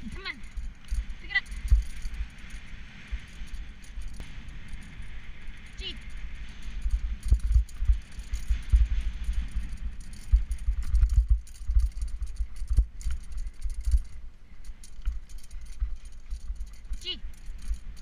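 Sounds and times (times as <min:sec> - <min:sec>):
bike thumping and rattling over ruts: 0:00.2 - 0:14.2.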